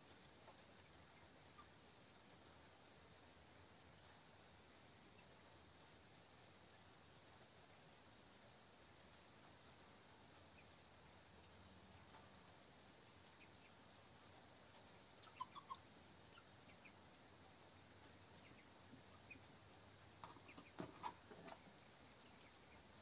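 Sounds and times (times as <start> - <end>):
faint clicks: 0.2 - 2.4, 8.1 - 23.0.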